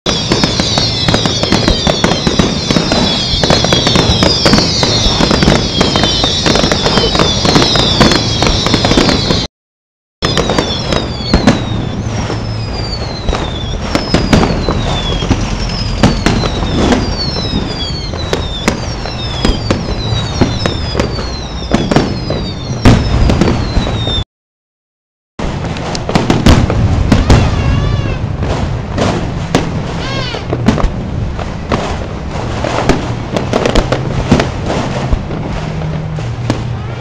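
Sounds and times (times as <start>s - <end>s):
fireworks bangs and crackles: 0.1s - 9.5s, 10.2s - 24.2s, 25.4s - 37.0s
fireworks whistles falling in pitch: 0.1s - 9.5s, 10.2s - 24.2s, 25.8s - 30.8s.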